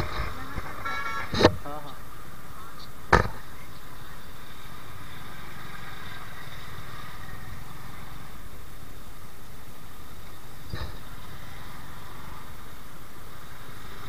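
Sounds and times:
motorcycle engine running: 0.0s - 14.0s
road noise: 0.0s - 14.0s
sharp knock: 3.1s - 3.4s.

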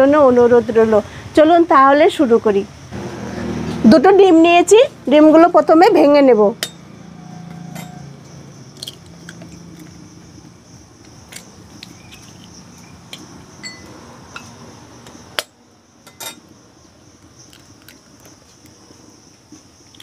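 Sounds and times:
high insect buzz: 2.6s - 20.0s.

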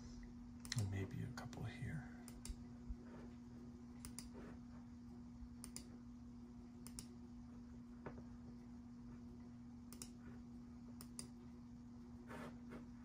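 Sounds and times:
steady low hum: 0.0s - 13.0s
computer mouse clicks: 4.0s - 4.4s, 5.6s - 5.9s, 6.8s - 7.1s, 9.9s - 10.2s, 11.0s - 11.4s.

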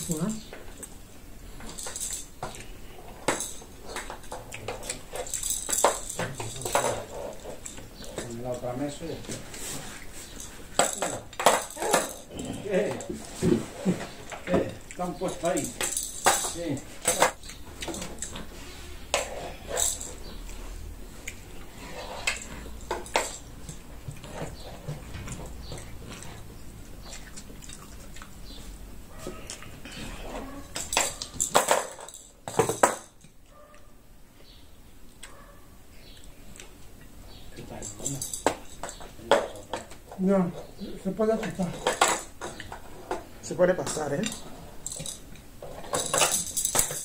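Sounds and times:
chewing and lip smacks: 21.2s - 21.6s, 26.0s - 28.7s.

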